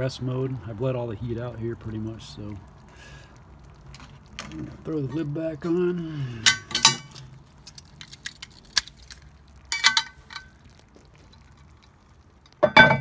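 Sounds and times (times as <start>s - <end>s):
cast iron lid clinking on pot: 6.4s - 7.3s, 9.7s - 10.5s, 12.6s - 13.0s.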